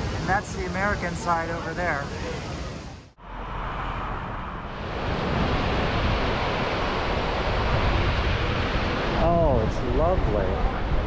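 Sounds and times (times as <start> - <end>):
distant whitewater rapids: 0.0 - 10.9
wind on microphone: 0.0 - 11.0.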